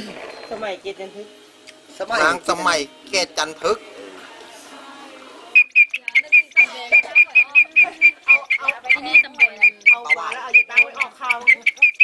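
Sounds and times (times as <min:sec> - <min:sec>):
katydid chirping: 0:05.5 - 0:12.0
people talking: 0:06.0 - 0:12.0.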